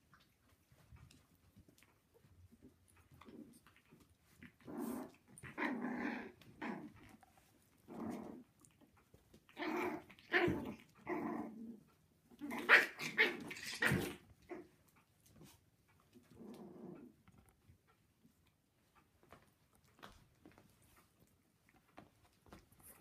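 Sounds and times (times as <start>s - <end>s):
puppies growling and yapping: 0.1s - 17.7s.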